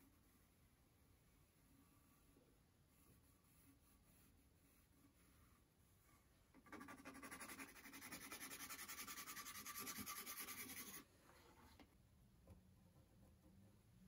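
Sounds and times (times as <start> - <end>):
pencil scribbling on wood: 6.6 - 11.0.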